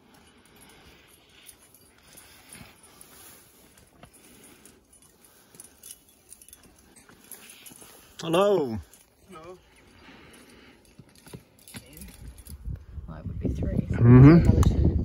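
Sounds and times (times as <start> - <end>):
metal climbing gear clinking: 0.0 - 13.0
brush rustling: 1.2 - 9.2.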